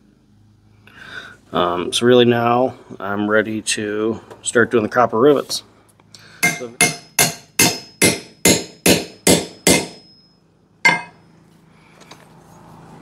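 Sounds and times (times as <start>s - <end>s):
hammer striking rivet tool: 6.4s - 10.2s, 10.9s - 11.2s
short high metallic ring: 9.6s - 11.3s.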